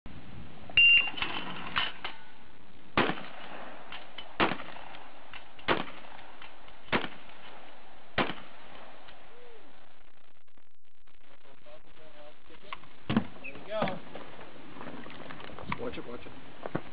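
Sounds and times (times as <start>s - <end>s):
shotgun shots: 3.0s - 9.1s.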